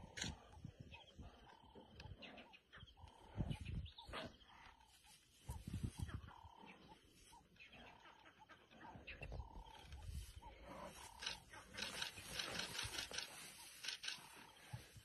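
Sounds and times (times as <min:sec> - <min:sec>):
lions growling low: 0:08.8 - 0:14.6.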